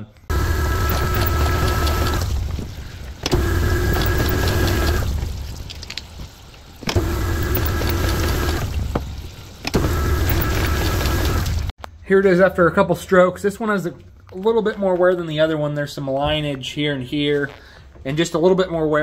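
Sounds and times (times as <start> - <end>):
honing machine motor hum: 0.3 - 5.4, 6.8 - 11.7.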